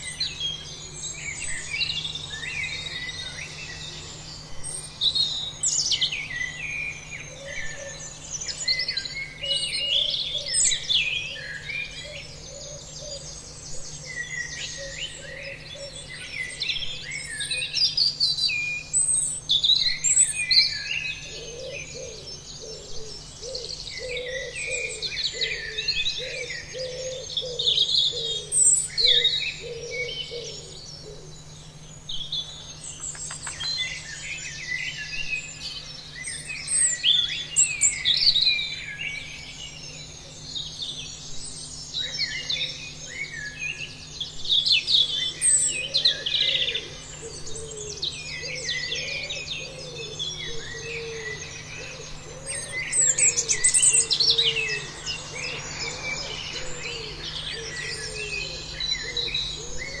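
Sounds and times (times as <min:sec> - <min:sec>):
lower repeated bird calls: 0:00.0 - 1:00.0
small birds chirping: 0:00.0 - 1:00.0.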